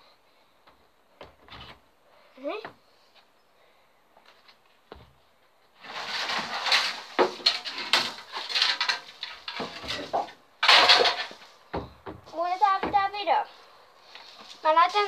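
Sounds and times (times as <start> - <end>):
rustling: 4.2 - 11.6
objects clattering: 5.8 - 11.9.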